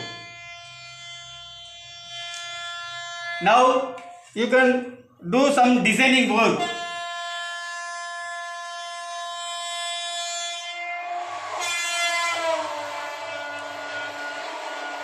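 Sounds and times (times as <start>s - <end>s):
train horn blasts: 0.0s - 0.6s, 10.2s - 15.0s.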